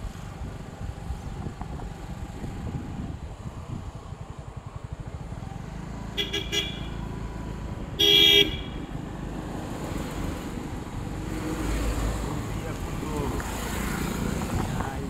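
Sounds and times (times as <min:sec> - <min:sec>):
vehicle rumbling along road: 0:00.0 - 0:15.0
vehicle horn toots: 0:06.2 - 0:07.0, 0:08.0 - 0:08.9.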